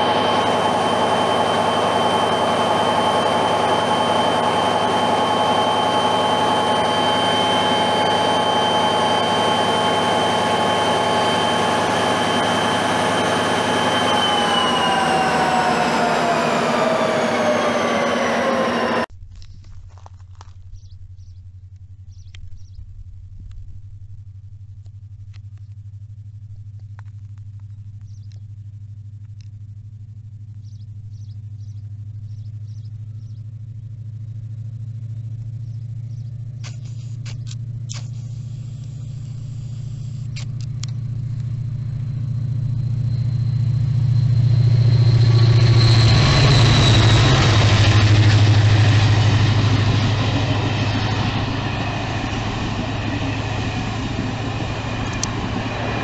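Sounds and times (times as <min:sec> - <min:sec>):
diesel locomotive engine drone: 0:00.0 - 0:56.0.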